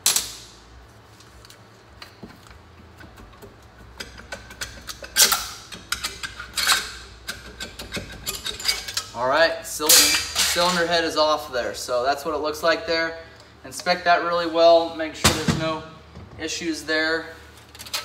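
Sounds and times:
metal parts clicking and clunking: 1.2 - 9.2, 9.8 - 10.9, 17.5 - 18.0.

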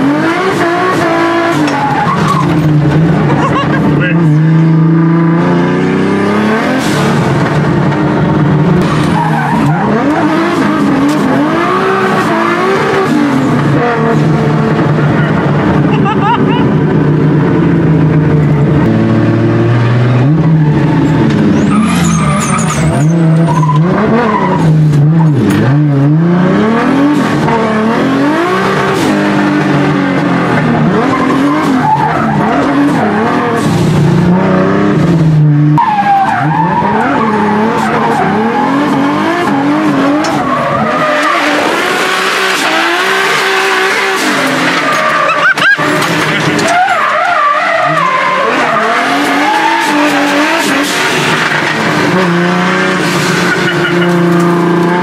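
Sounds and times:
tyres squealing and skidding: 0.0 - 4.6, 8.8 - 14.2, 20.2 - 25.8, 30.2 - 34.0, 35.6 - 55.0
car engine revving: 0.0 - 55.0.

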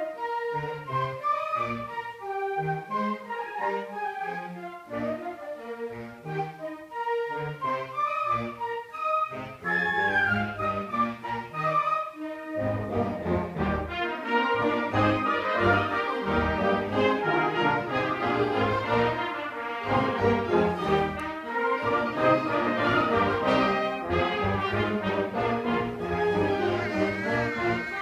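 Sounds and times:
concert band playing: 25.7 - 28.0.

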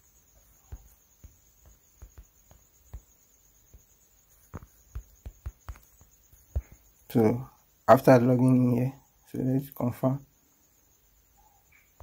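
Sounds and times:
taps on smartphone screen: 0.6 - 3.9, 4.5 - 6.9.

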